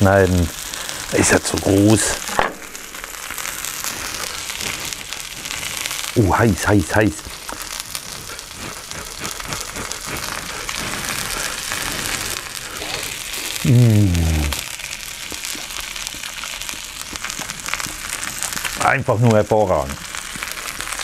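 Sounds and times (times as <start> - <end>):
sausages sizzling on a hot plate: 0.0 - 21.0
man humming mmm: 7.5 - 15.7.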